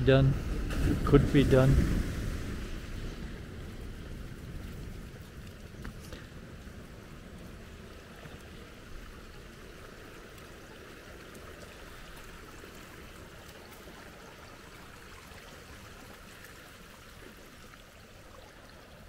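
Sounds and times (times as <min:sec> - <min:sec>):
water trickling over stones: 0:02.3 - 0:19.0.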